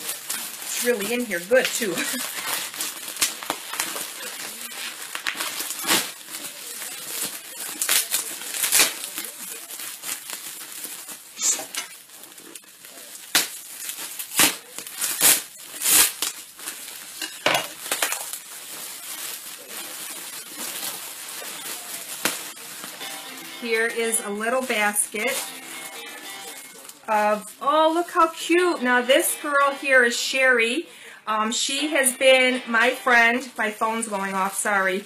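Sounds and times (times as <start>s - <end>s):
cellophane crinkling and tearing: 0.0s - 30.0s.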